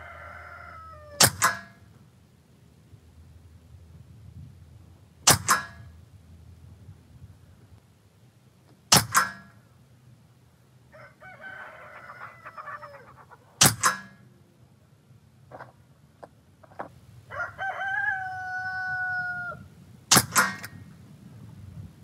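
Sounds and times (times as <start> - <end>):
rooster crowing: 0.0 - 1.2, 10.9 - 13.4, 17.3 - 19.7
air pistol shots: 5.2 - 5.8, 8.9 - 9.5, 13.6 - 14.1, 20.1 - 20.8.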